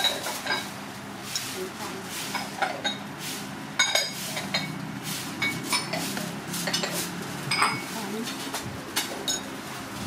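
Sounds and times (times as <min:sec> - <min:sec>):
metal spoon clinking on saucepan: 0:09.3 - 0:09.5.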